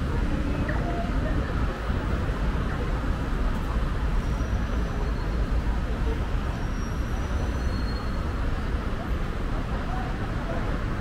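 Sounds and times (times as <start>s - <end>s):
city road traffic: 0.0s - 11.0s.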